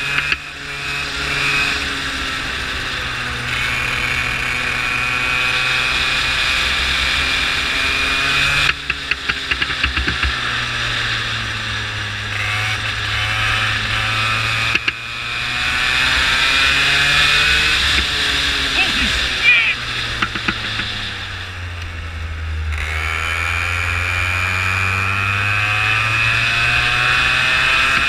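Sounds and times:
go-kart engine revving: 0:00.0 - 0:28.0
clicks and rattles: 0:08.7 - 0:10.4, 0:14.7 - 0:15.0, 0:20.2 - 0:21.0.

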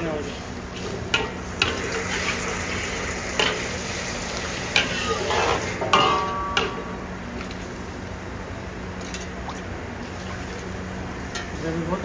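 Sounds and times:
steady sizzle: 0:00.0 - 0:12.0
ladle stirring in a wok: 0:00.2 - 0:06.8
ladle knocking metal wok: 0:05.8 - 0:07.0.

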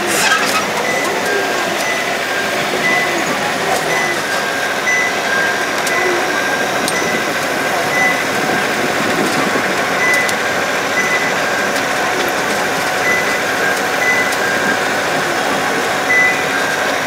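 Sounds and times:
road train engine and rolling: 0:00.0 - 0:17.0.

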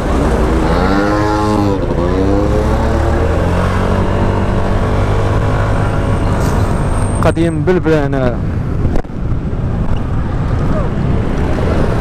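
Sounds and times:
wind rumble on microphone: 0:08.2 - 0:12.0.

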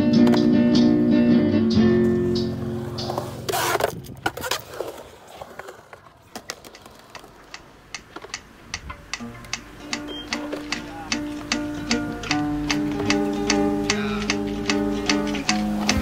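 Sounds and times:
acoustic guitar music: 0:00.0 - 0:04.2, 0:07.4 - 0:16.0
skateboard wheels rolling on concrete: 0:00.0 - 0:16.0
skateboards clacking: 0:00.0 - 0:16.0
skateboard scrape: 0:02.1 - 0:07.5.

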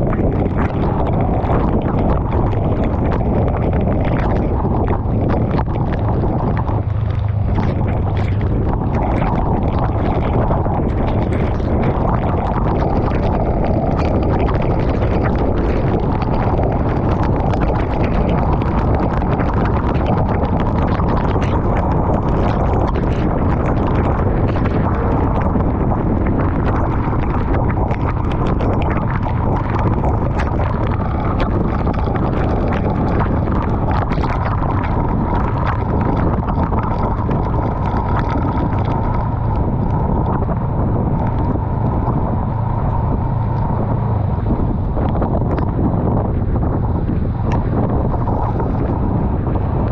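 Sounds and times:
raindrops tapping camera: 0:00.0 - 0:46.5
motorcycle wind and road noise: 0:00.0 - 0:49.9.

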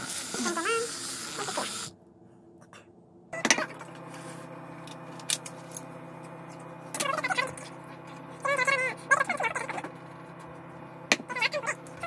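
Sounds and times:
electric milk frother whirring: 0:00.0 - 0:01.9
steady low hum: 0:01.9 - 0:12.0.

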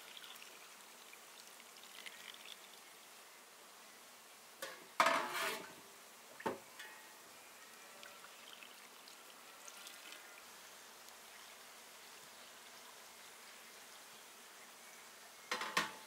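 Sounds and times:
liquid pouring splash: 0:01.8 - 0:02.8.

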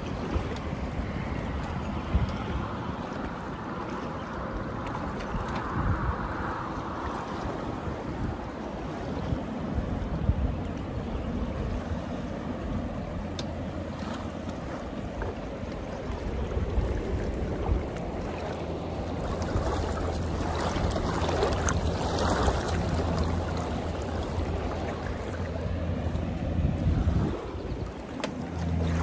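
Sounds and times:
wind buffeting microphone: 0:00.0 - 0:29.0
river water rushing: 0:11.6 - 0:29.0.

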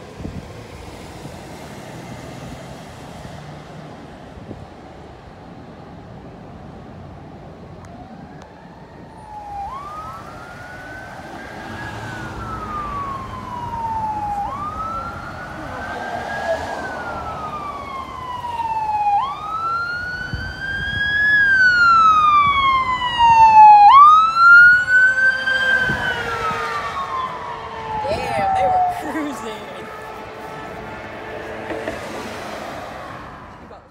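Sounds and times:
ambulance siren wailing: 0:07.3 - 0:33.9.

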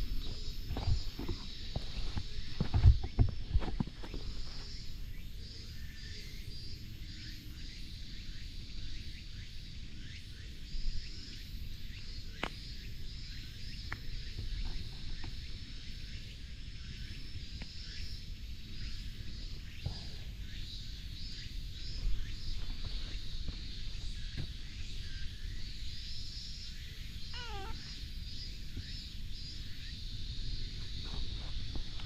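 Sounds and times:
pulsing insect buzz: 0:23.2 - 0:31.8
bird chirps: 0:27.3 - 0:28.0.

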